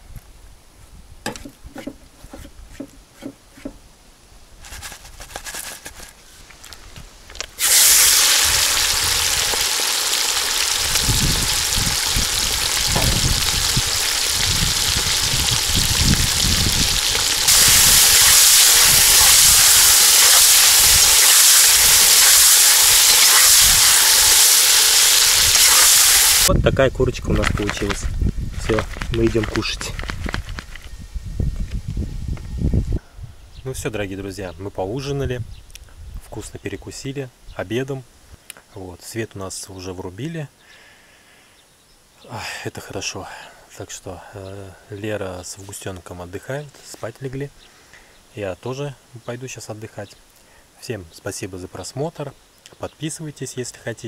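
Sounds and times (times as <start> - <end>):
handling clicks and knocks: 1.3 - 3.8
chicken sizzling in hot oil: 7.6 - 26.5.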